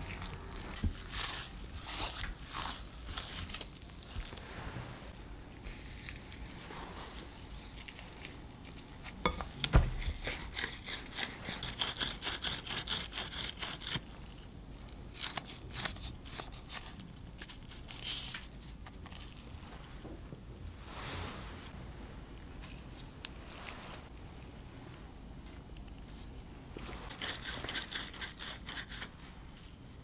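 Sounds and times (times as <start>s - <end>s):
dough squishing: 0.0s - 5.0s
disposable gloves rubbing: 20.7s - 24.1s.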